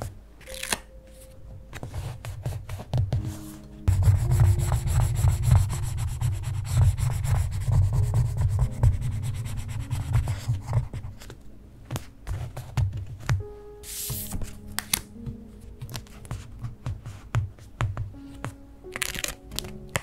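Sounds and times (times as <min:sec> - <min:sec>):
fingertips tapping paper: 0:01.7 - 0:20.0
spatula rubbing on paper: 0:01.8 - 0:11.3.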